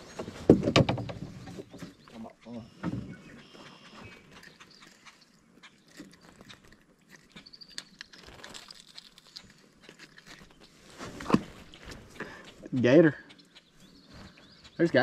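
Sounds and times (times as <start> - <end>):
fish handling clicks and crackles: 4.1 - 14.5.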